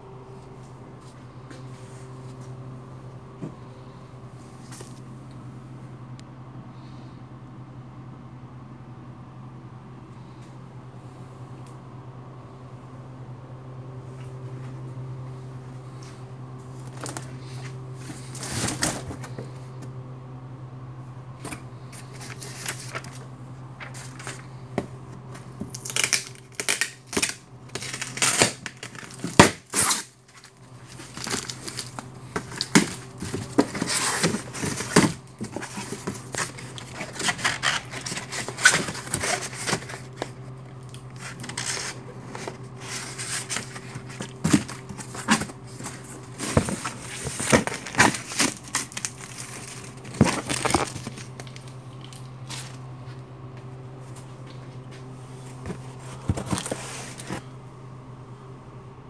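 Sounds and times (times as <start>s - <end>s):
low machine hum: 0.0s - 59.0s
cardboard rustling and scraping: 15.9s - 19.9s, 21.4s - 26.8s, 27.7s - 53.3s, 54.0s - 57.5s.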